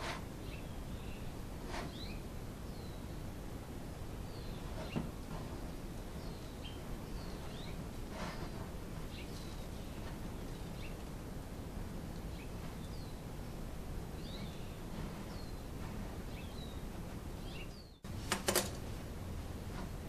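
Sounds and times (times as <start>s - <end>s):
outdoor background noise: 0.0s - 20.0s
bird chirps: 6.1s - 7.8s, 8.4s - 11.1s, 14.2s - 15.7s.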